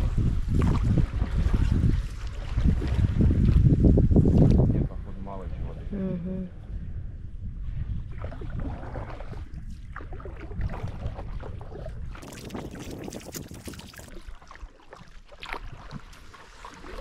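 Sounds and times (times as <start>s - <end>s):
kayak paddles splashing water: 0.0s - 4.6s, 8.0s - 17.0s
wind rumbling on microphone: 0.0s - 17.0s.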